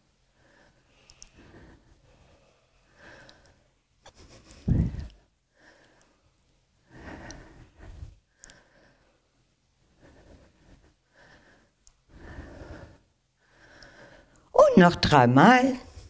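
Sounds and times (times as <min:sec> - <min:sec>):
person breathing: 0:00.3 - 0:14.5.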